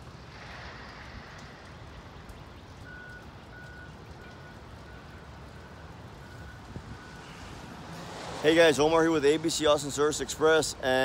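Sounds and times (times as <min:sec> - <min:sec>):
low outdoor rumble: 0:00.0 - 0:07.8
vehicle reversing beeper: 0:02.8 - 0:07.6.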